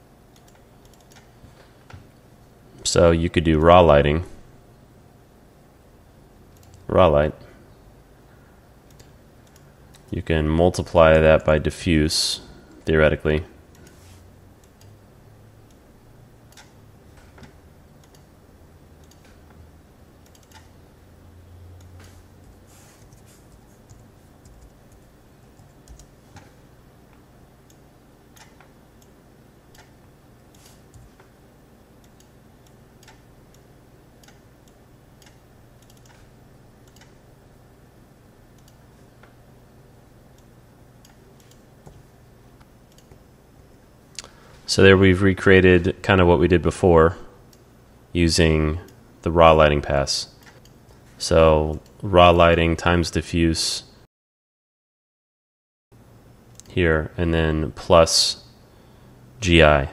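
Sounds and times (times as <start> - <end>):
low steady hum: 0.0 - 54.1, 56.0 - 59.9
keyboard and mouse clicks: 0.3 - 1.3, 8.9 - 10.2, 16.5 - 18.3, 19.0 - 19.6, 20.2 - 20.7, 21.8 - 26.6, 28.4 - 29.1, 29.7 - 31.3, 32.0 - 37.2, 40.4 - 42.0, 42.6 - 43.2.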